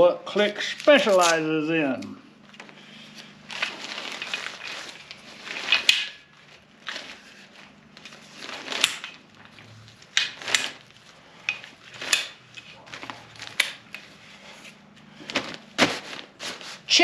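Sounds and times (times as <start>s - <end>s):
fabric rustling: 2.4s - 17.0s
metal chair frame clicking: 5.5s - 6.3s, 8.6s - 12.8s, 13.4s - 14.1s.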